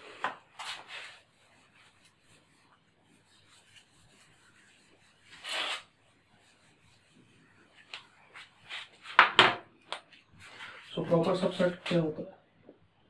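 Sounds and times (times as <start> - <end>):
eraser wiping whiteboard: 0.0 - 9.2.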